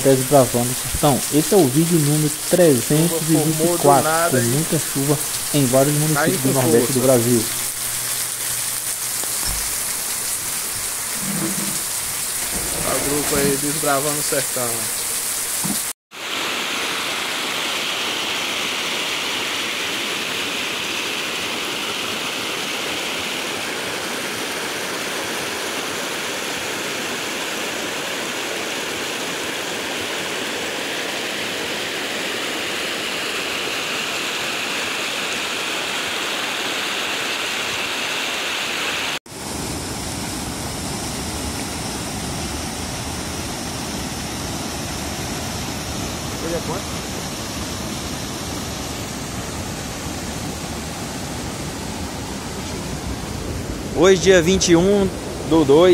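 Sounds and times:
floodwater rushing over rocks: 0.0s - 8.0s, 9.0s - 40.0s, 41.4s - 55.9s.

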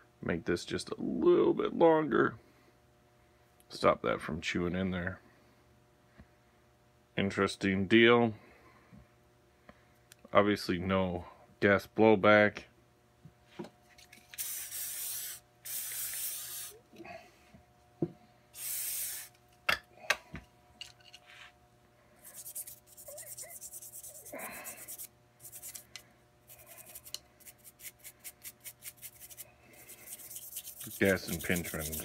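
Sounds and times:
aerosol spray can hissing: 14.4s - 16.8s, 18.6s - 19.4s
stiff brush scrubbing metal: 26.5s - 32.0s.

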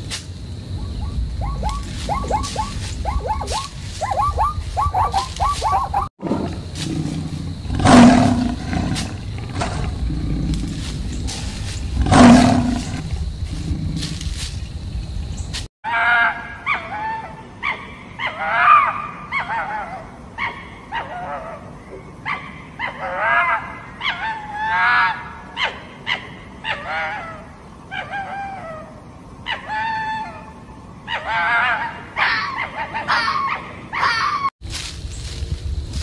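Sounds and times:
fox barking yelps: 0.8s - 6.6s, 15.9s - 34.5s.

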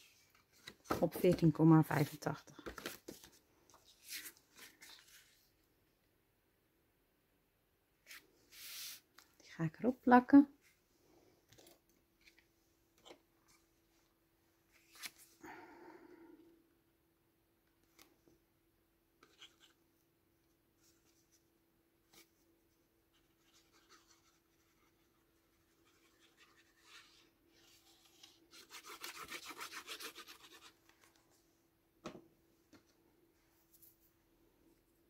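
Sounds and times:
paper rubbing and scratching: 23.2s - 30.8s.

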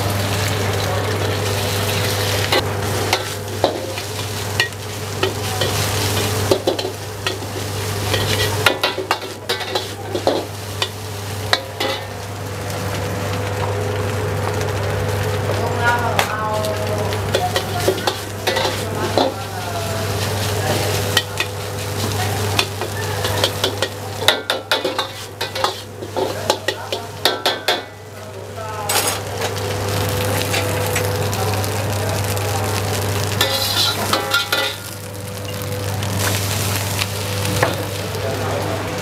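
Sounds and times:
rice sizzling in a wok: 0.0s - 39.0s
metal ladle scraping a wok: 33.4s - 34.9s.

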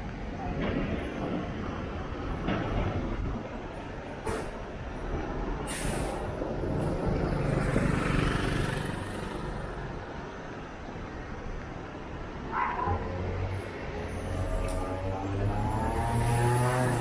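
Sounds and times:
street traffic hum: 0.0s - 17.0s
short hiss: 5.7s - 6.2s
motor scooter passing: 14.2s - 17.0s.

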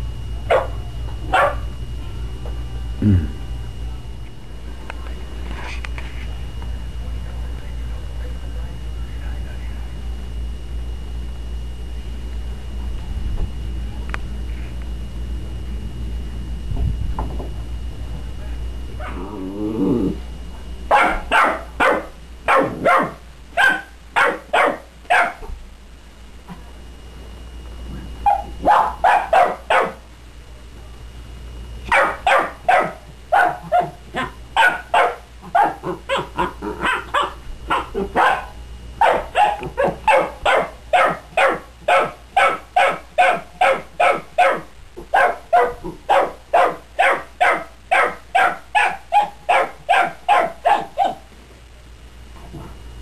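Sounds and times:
dog barking: 0.5s - 1.7s, 19.0s - 19.2s, 20.9s - 25.5s, 28.2s - 30.0s, 31.9s - 51.3s.

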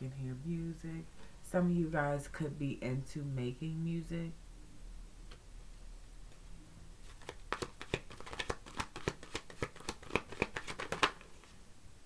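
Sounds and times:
cards being shuffled: 7.0s - 11.6s.

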